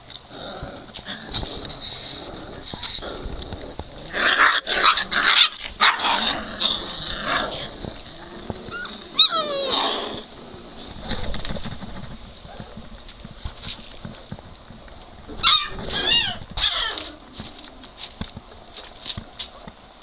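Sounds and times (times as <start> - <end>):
puppies play-growling and yipping: 0.2 - 19.7
puppy high yelp: 8.7 - 10.1, 15.4 - 17.1.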